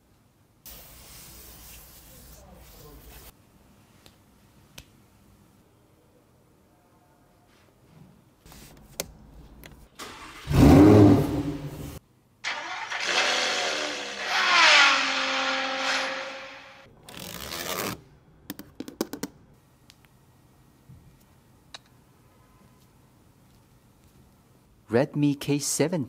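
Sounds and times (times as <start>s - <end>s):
sports car engine revving: 10.4s - 11.8s, 12.5s - 16.9s.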